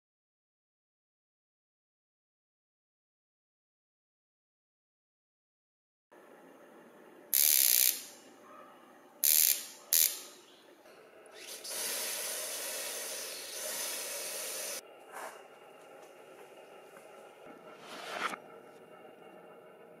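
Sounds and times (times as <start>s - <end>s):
spark plug sparking: 7.4s - 8.2s, 9.2s - 10.3s.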